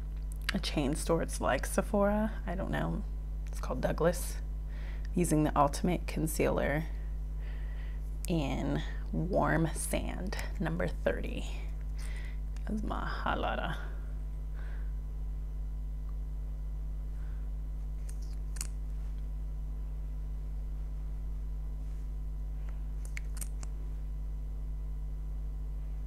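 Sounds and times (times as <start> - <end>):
low background hum: 0.0 - 26.0.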